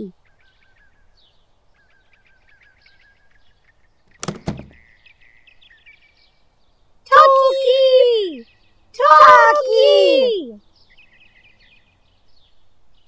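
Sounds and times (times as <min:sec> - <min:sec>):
faint birdsong chirping: 0:00.0 - 0:07.2, 0:08.4 - 0:09.4, 0:10.6 - 0:13.0
suitcase set down thump: 0:04.1 - 0:04.8.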